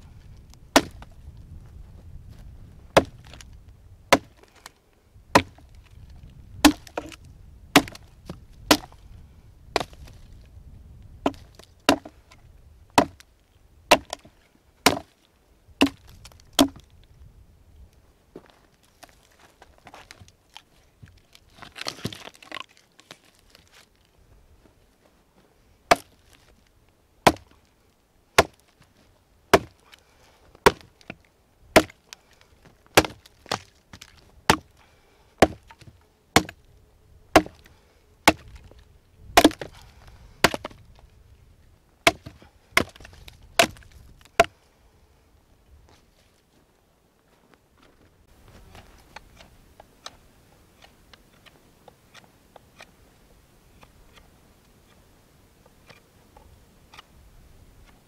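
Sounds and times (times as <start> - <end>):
hatchet chopping log: 0.7 - 1.1, 3.0 - 3.5, 4.1 - 4.5, 5.3 - 5.7, 6.6 - 9.0, 9.8 - 10.0, 11.2 - 12.2, 13.0 - 13.2, 13.9 - 15.1, 15.8 - 16.8, 25.9 - 26.2, 27.2 - 27.6, 28.4 - 28.7, 29.5 - 30.0, 30.6 - 31.2, 31.8 - 32.1, 32.9 - 34.7, 35.4 - 36.6, 37.3 - 38.7, 39.4 - 39.8, 40.4 - 40.8, 42.0 - 44.5
wood splintering crackle: 31.8 - 34.8.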